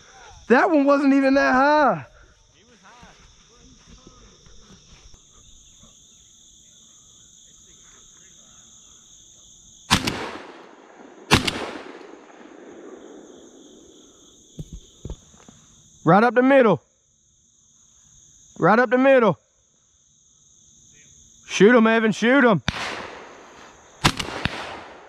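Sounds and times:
insects chirring: 0:00.0 - 0:25.0
shotgun shots with echo: 0:09.9 - 0:13.9, 0:22.7 - 0:25.0.

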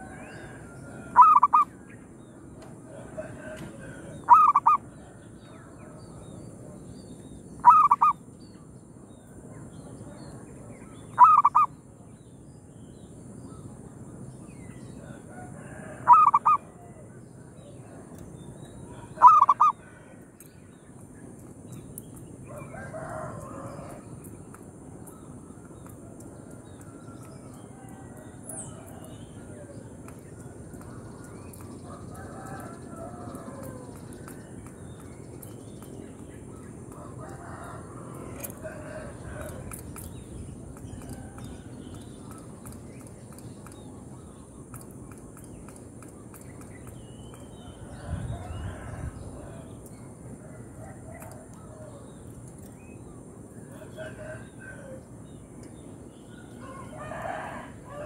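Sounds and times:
dove cooing: 0:00.0 - 0:01.6, 0:03.2 - 0:04.8, 0:07.6 - 0:08.1, 0:11.2 - 0:11.7, 0:16.1 - 0:16.6, 0:19.1 - 0:19.8.

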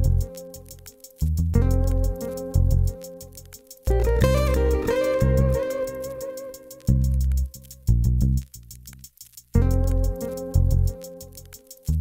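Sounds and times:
deep bass notes: 0:00.0 - 0:00.3, 0:01.2 - 0:03.0, 0:03.9 - 0:11.0
light ticking beat: 0:00.0 - 0:12.0.

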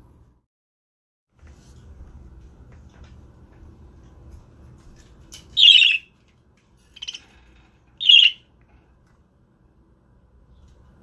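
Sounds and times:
budgerigar calls: 0:05.6 - 0:06.0, 0:08.0 - 0:08.4.

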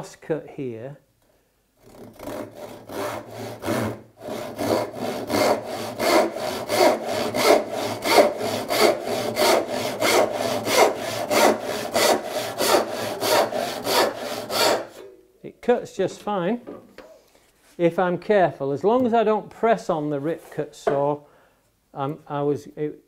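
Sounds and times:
handsaw cutting wood: 0:01.8 - 0:15.0.

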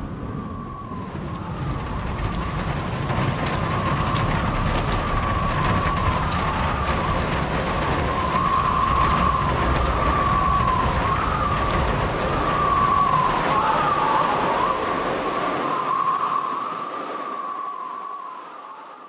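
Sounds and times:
rain-like hiss: 0:00.0 - 0:19.0
high wavering whistling tone: 0:07.9 - 0:19.0.

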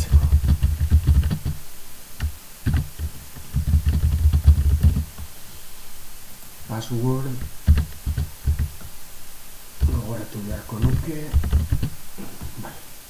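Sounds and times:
typing on computer keyboard: 0:00.0 - 0:01.6, 0:02.2 - 0:05.1, 0:07.7 - 0:08.9, 0:10.8 - 0:11.9.

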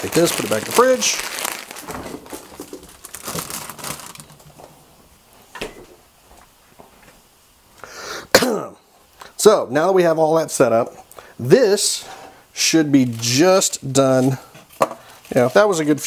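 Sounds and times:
plastic bag crinkling: 0:00.0 - 0:04.7.

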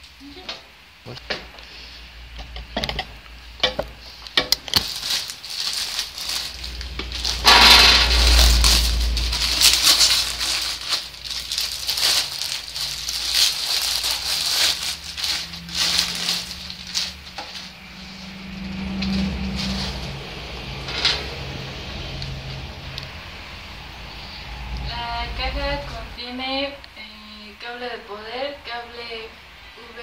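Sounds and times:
plastic bag crinkling: 0:04.0 - 0:17.8.

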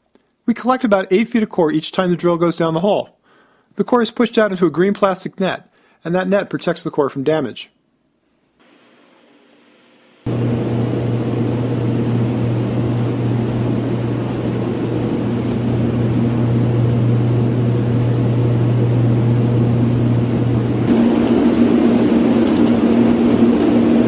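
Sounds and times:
machine hum with low drone: 0:10.3 - 0:24.0.

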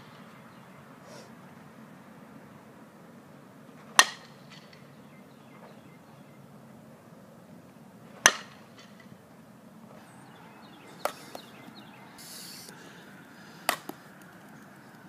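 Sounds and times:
bat striking softball: 0:03.9 - 0:04.9, 0:08.2 - 0:09.1, 0:10.8 - 0:11.9, 0:13.6 - 0:14.6.

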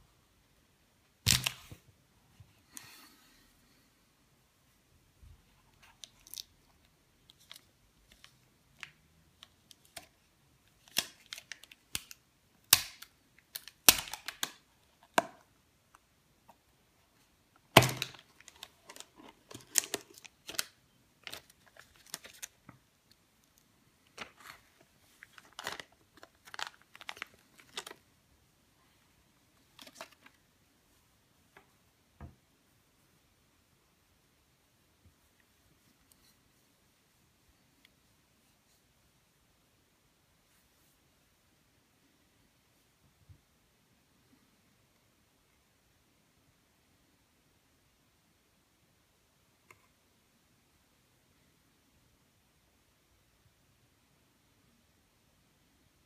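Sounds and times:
plastic film crinkling: 0:17.7 - 0:22.8, 0:24.1 - 0:28.0.

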